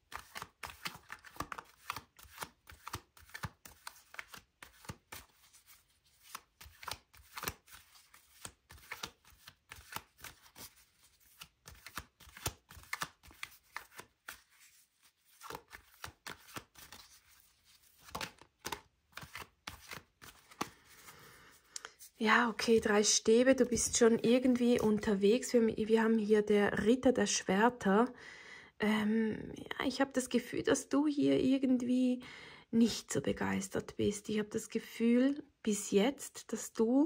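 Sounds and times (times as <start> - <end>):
cards being shuffled: 0.0 - 22.9.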